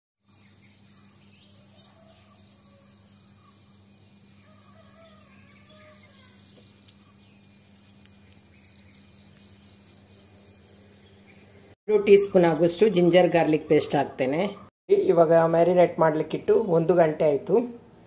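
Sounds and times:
insects chirping: 0:00.2 - 0:11.8.

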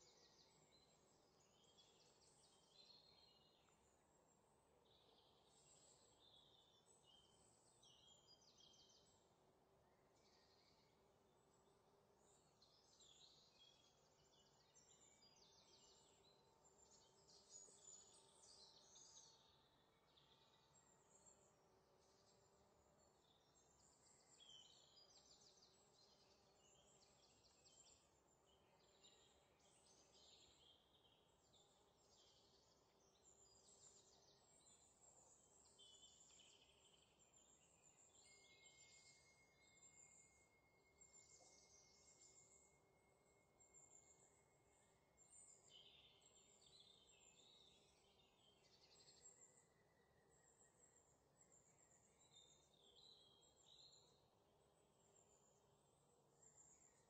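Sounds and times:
faint high-pitched chirping: 0:00.0 - 0:57.0
faint steady high tone: 0:33.5 - 0:57.0.

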